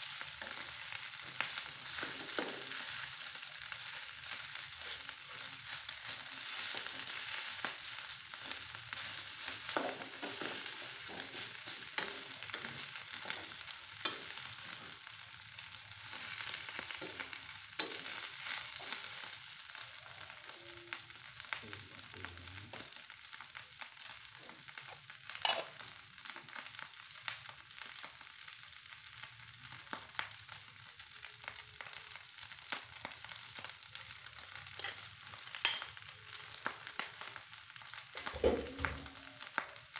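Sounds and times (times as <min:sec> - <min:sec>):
fried rice sizzling in a wok: 0:00.0 - 0:39.9
spatula clacking and scraping pan: 0:01.3 - 0:03.1, 0:04.8 - 0:15.0, 0:16.3 - 0:19.1, 0:25.4 - 0:25.8, 0:34.8 - 0:36.0.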